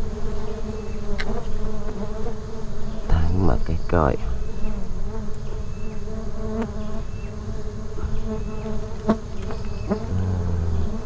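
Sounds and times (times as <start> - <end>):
bees buzzing: 0.0 - 11.0.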